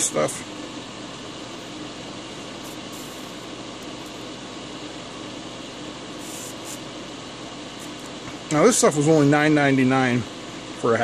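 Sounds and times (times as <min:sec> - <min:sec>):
electric fan whirring: 0:00.0 - 0:11.0
faint high hisses: 0:02.6 - 0:04.2, 0:06.2 - 0:06.9.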